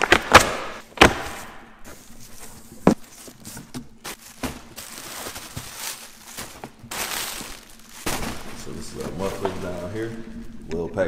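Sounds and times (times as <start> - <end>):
bubble wrap rustling: 1.9 - 10.6.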